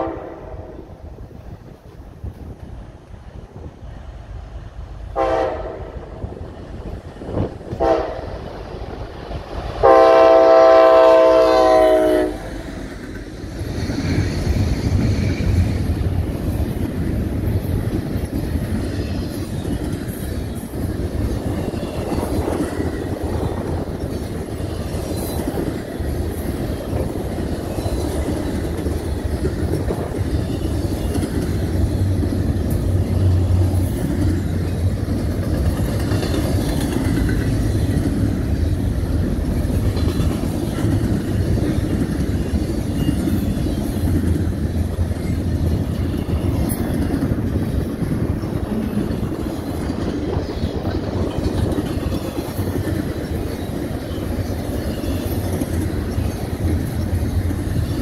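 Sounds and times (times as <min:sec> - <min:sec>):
train air horn: 0:00.0 - 0:00.9, 0:05.1 - 0:06.1, 0:07.7 - 0:08.4, 0:09.8 - 0:12.6
train wheels rumbling on rails: 0:00.0 - 0:58.0.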